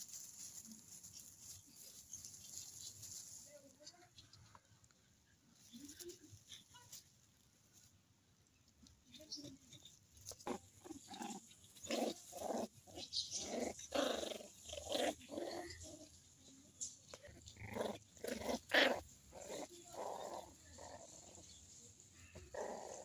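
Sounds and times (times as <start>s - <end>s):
dogs growling and yapping: 9.5s - 16.3s, 17.0s - 21.6s, 22.2s - 23.0s.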